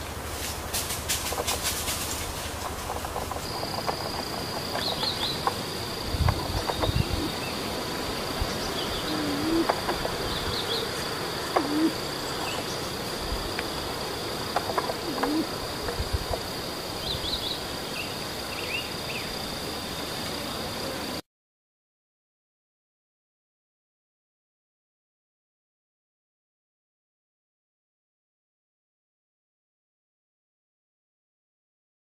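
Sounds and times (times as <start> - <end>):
high-pitched insect drone: 0.0 - 21.2
faint bird chirps: 1.2 - 7.8, 8.4 - 13.0.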